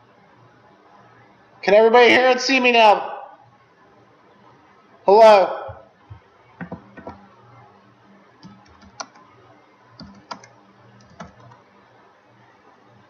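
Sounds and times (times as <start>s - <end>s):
computer keyboard typing: 6.6s - 7.2s, 8.4s - 9.2s, 10.0s - 11.6s.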